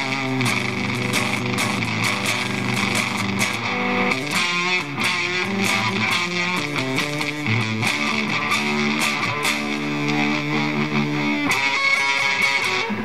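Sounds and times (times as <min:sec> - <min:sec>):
fuzz electric guitar riff: 0:00.0 - 0:13.0.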